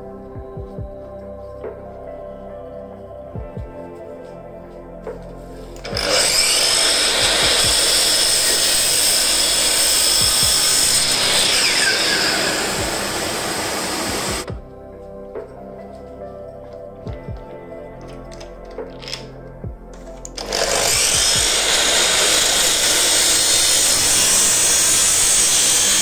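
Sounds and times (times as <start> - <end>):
miter saw cutting wood: 5.8 - 14.5, 20.4 - 26.0.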